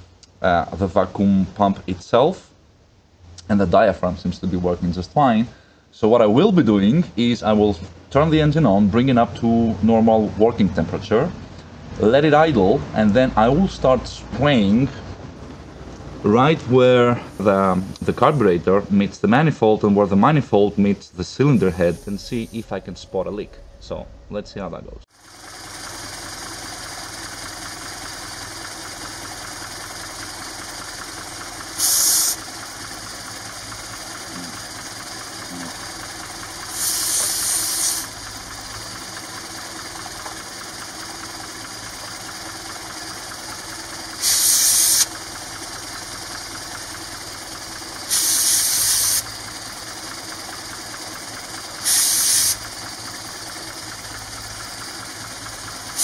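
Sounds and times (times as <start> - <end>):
car engine idling: 6.6 - 56.0
short hisses of aerosol spray: 31.8 - 32.4, 36.7 - 38.1, 44.2 - 45.1, 48.1 - 49.2, 51.8 - 52.6.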